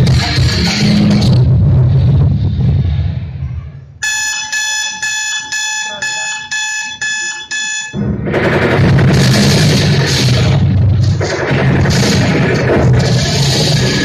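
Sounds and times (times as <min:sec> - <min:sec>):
electronic alarm-like beep: 0:04.0 - 0:08.1.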